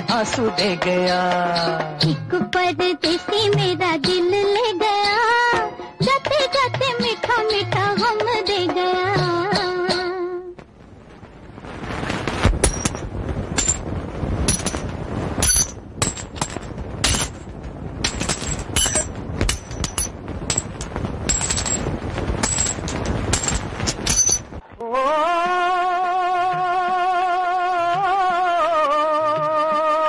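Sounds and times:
steady rushing noise: 0:10.5 - 0:24.8
sharp cracks: 0:10.5 - 0:24.9.

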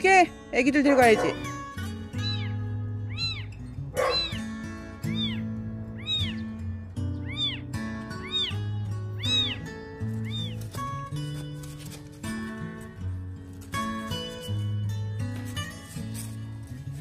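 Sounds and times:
background music: 0:00.0 - 0:17.0
kitten meowing: 0:02.2 - 0:04.5, 0:05.1 - 0:06.5, 0:07.2 - 0:10.7.

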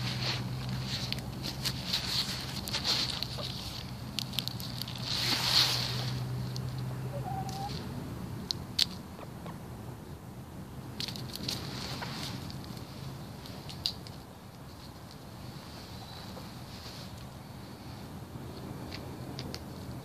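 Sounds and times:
hens rustling in dry leaves: 0:00.0 - 0:08.4, 0:10.9 - 0:19.2
hen soft call: 0:06.9 - 0:07.8.

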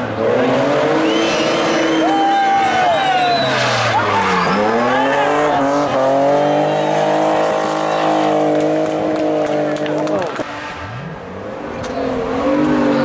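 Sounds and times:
rally car engine revving: 0:00.0 - 0:13.0
tyres spinning and squealing: 0:00.8 - 0:08.4.

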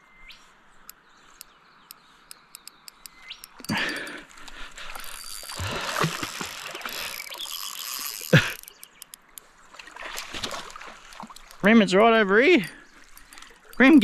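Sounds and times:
fishing reel whirring: 0:02.3 - 0:04.1, 0:04.8 - 0:09.4, 0:12.6 - 0:14.0
rod and reel knocks: 0:11.3 - 0:14.0.

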